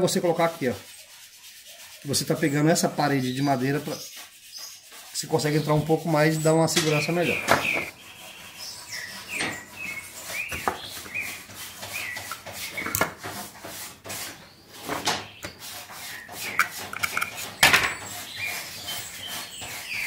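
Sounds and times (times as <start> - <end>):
bird chirps: 5.5 - 13.0
wooden pieces scraping and knocking: 14.8 - 18.1.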